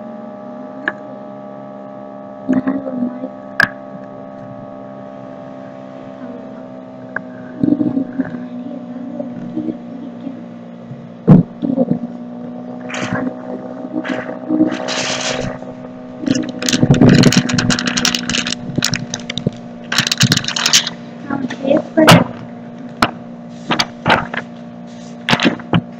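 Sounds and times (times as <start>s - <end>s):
low hum: 0.0s - 25.9s
short scrapes: 14.0s - 15.6s
rapid clicking and clattering: 16.2s - 21.0s, 23.0s - 24.5s, 25.3s - 25.9s.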